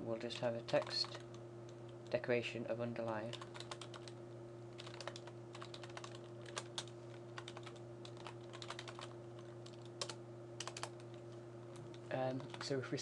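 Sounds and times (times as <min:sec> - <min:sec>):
steady low hum: 0:00.0 - 0:13.0
typing on computer keyboard: 0:00.7 - 0:01.3, 0:03.1 - 0:04.2, 0:04.8 - 0:11.1, 0:12.4 - 0:12.7.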